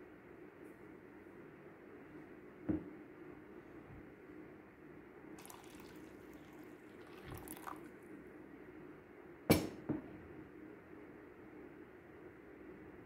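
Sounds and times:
water trickling into coffee filter: 0:05.4 - 0:08.0
sharp knock: 0:09.5 - 0:10.0.

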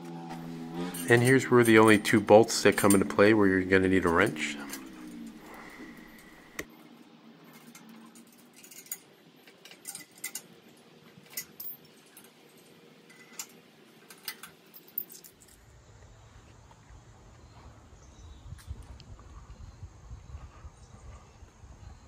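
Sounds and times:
metal clinks of bolts and wrench: 0:00.6 - 0:06.4, 0:07.5 - 0:15.6.

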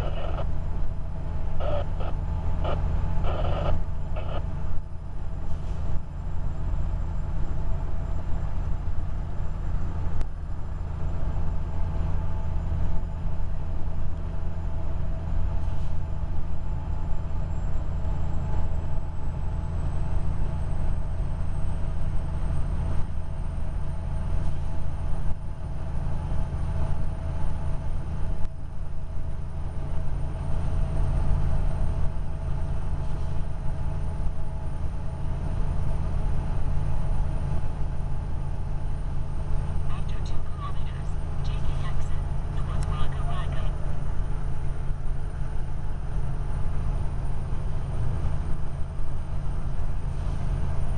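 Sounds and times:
truck diesel engine drone: 0:00.0 - 0:50.9
thin high whine: 0:01.6 - 0:04.8.

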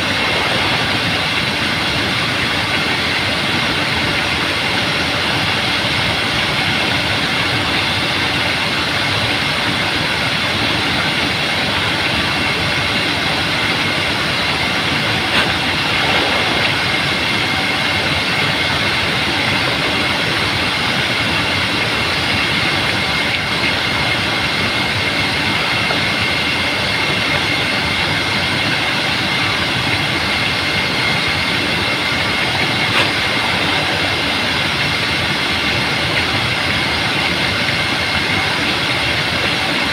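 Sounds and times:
water splashing: 0:14.2 - 0:21.9.

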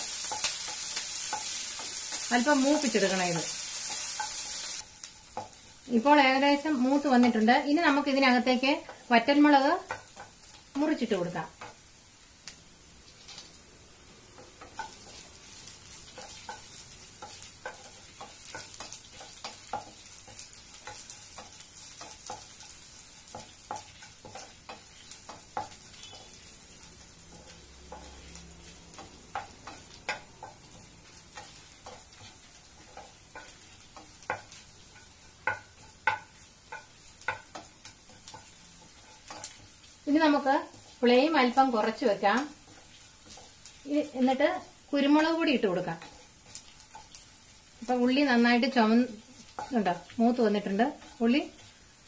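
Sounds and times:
onions frying in oil: 0:00.0 - 0:52.0
wooden spatula tapping pan: 0:05.3 - 0:05.6, 0:08.5 - 0:11.8, 0:14.4 - 0:15.3, 0:15.9 - 0:40.0.

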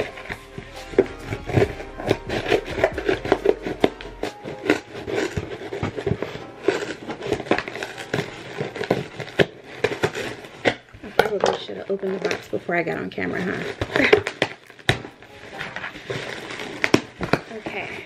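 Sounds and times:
background music: 0:00.0 - 0:10.7, 0:14.8 - 0:17.8
scissors snipping packaging: 0:00.0 - 0:12.7, 0:13.3 - 0:18.0
package crinkling: 0:00.0 - 0:18.0.

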